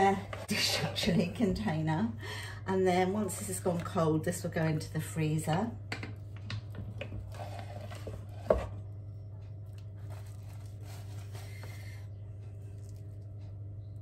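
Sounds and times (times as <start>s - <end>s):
spatula scraping saucepan: 0.0s - 1.6s, 7.2s - 8.8s
low hum: 0.0s - 14.0s.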